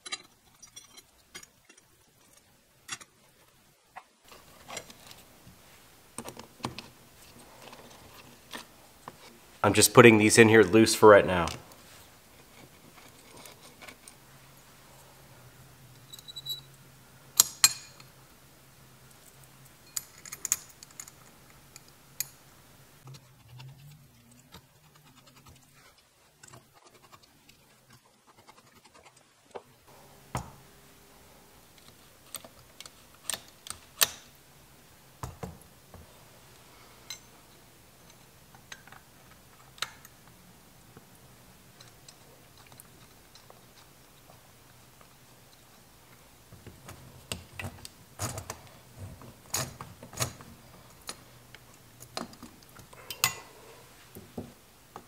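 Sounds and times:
faint steady hum: 0.0 - 55.0
screwdriver clicking on metal parts: 31.8 - 34.4.

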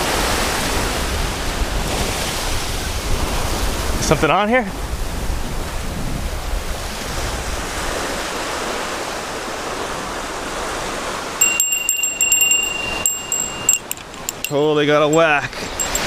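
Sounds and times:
surf washing onto beach: 0.0 - 11.8
bite bell jingling: 11.4 - 16.0.

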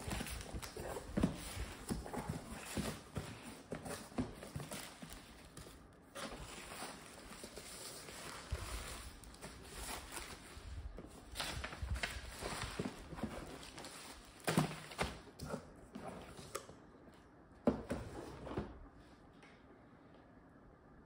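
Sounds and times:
rustling bubble wrap and paper: 0.0 - 15.2.

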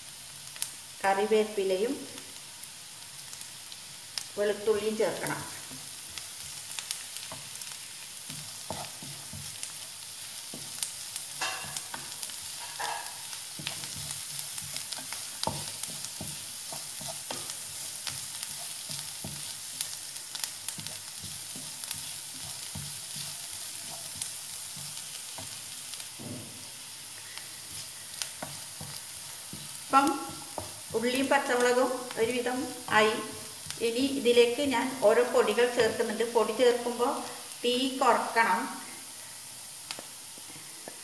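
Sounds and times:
food sizzling in oil: 0.0 - 41.0
wooden spatula scraping a pan: 5.2 - 26.2, 27.6 - 34.0.

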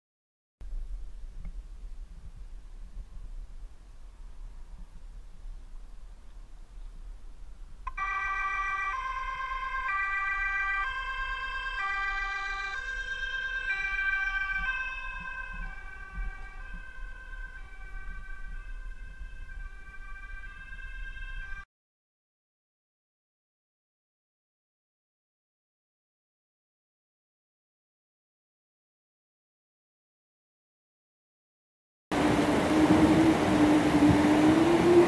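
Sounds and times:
two-tone siren: 7.9 - 21.7, 32.1 - 35.0.

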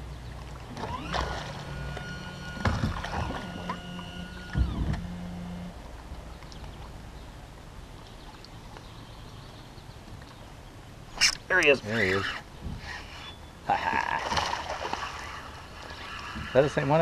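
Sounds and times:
boat motor humming: 0.0 - 17.0
sharp knocks in boat: 0.7 - 5.2.

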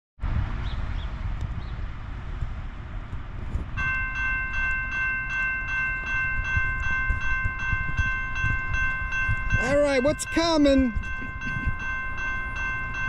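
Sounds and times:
wind rumble on microphone: 0.2 - 13.0
crossing warning bell ringing: 3.8 - 13.0.

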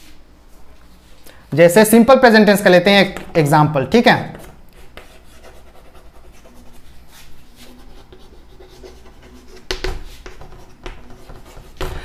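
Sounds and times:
chalk scratching on chalkboard: 4.3 - 12.0.

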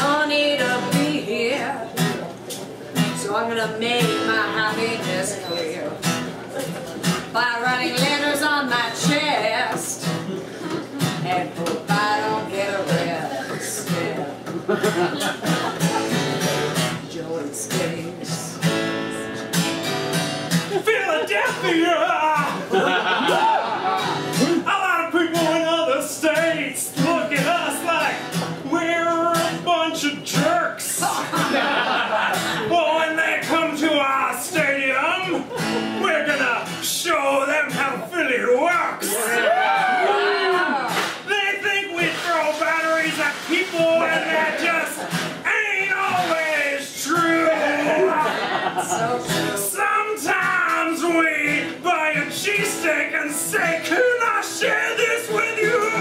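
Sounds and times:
person singing: 0.0 - 2.0, 11.1 - 14.4, 41.3 - 56.0
strummed acoustic guitar: 0.0 - 56.0.

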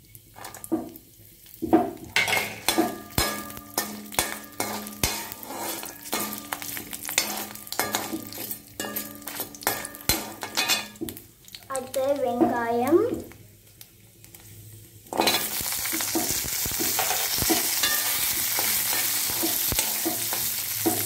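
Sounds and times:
food sizzling in hot oil: 0.0 - 21.0
metal spatula scraping pan: 2.2 - 11.0, 15.1 - 21.0.

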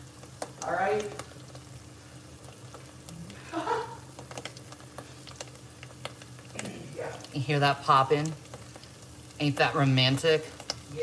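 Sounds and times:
sauce sizzling and popping: 0.0 - 11.0.

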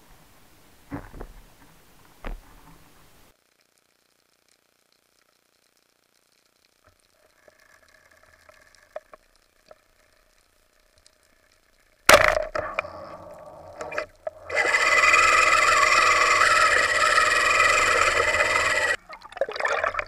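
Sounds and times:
speargun firing crack: 12.1 - 12.7
underwater water rushing: 12.5 - 20.0.

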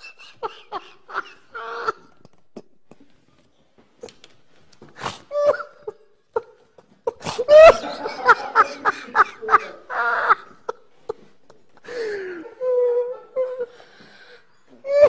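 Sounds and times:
man laughing: 0.0 - 2.8, 7.4 - 11.6.

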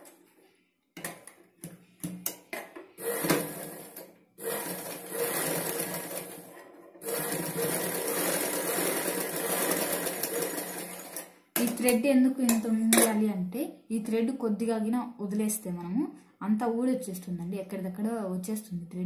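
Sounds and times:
sewing machine stitching: 3.0 - 11.3.

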